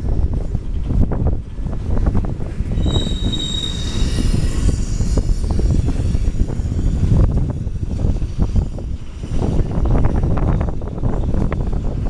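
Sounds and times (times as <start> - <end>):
freight train rumbling: 0.0 - 12.0
high-pitched wheel squeal: 2.6 - 7.8.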